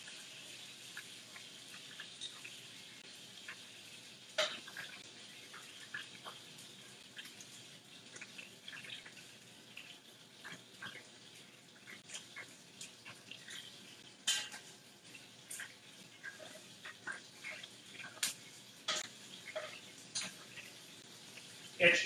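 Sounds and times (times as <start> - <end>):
faint sizzle: 0.0 - 22.0
metal utensils clinking on pots: 1.7 - 2.6, 4.4 - 6.4, 14.2 - 14.8, 15.5 - 20.8.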